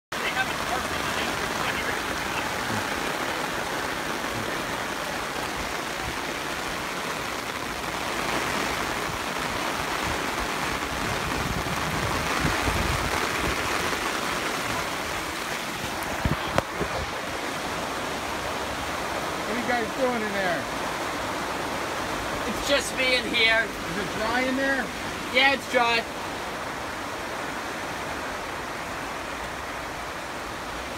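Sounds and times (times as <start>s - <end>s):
steady rain falling: 0.1s - 30.9s.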